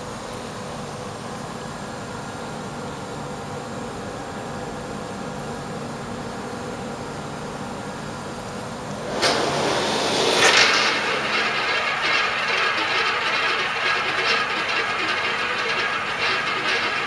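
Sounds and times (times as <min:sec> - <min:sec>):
roulette ball rolling: 0:10.4 - 0:17.0.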